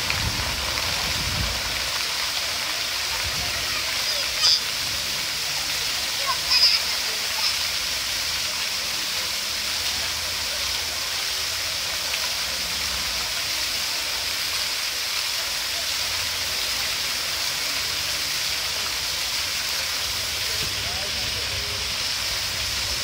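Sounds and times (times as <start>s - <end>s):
fountain water splashing: 0.0s - 23.0s.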